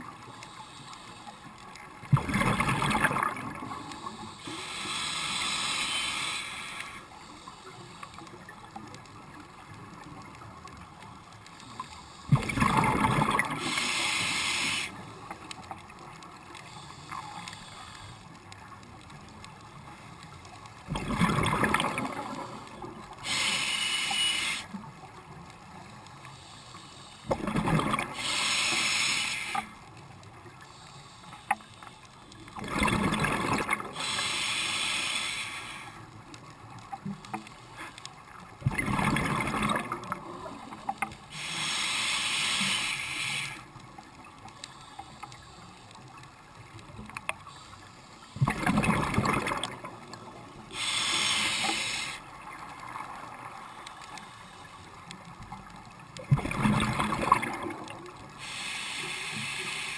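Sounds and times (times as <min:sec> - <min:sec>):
exhaled bubbles rumbling: 0:02.1 - 0:03.8, 0:12.3 - 0:13.6, 0:20.9 - 0:22.6, 0:27.3 - 0:28.2, 0:32.6 - 0:33.9, 0:38.6 - 0:40.7, 0:48.4 - 0:50.1, 0:56.2 - 0:58.2
regulator air hiss: 0:03.9 - 0:08.3, 0:13.6 - 0:15.3, 0:16.6 - 0:18.4, 0:23.2 - 0:24.8, 0:25.8 - 0:27.3, 0:28.2 - 0:29.9, 0:30.6 - 0:32.4, 0:33.9 - 0:36.2, 0:41.2 - 0:43.8, 0:47.4 - 0:48.4, 0:50.6 - 0:52.4, 0:58.3 - 0:59.9.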